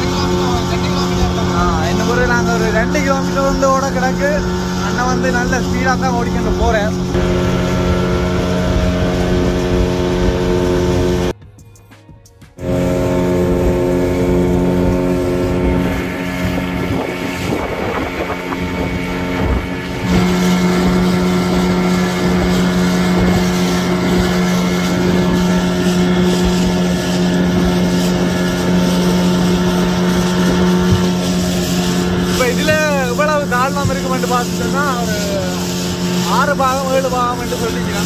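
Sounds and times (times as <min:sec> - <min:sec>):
wind buffeting microphone: 0:00.0 - 0:11.3, 0:12.7 - 0:38.0
outboard motor running: 0:00.0 - 0:11.4, 0:12.6 - 0:38.0.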